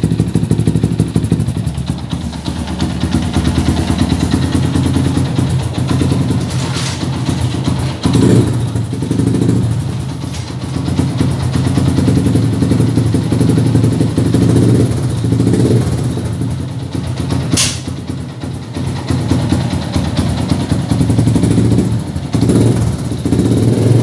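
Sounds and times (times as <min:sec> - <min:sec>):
motorcycle engine revving: 0:00.0 - 0:24.0
sharp click: 0:17.6 - 0:17.9.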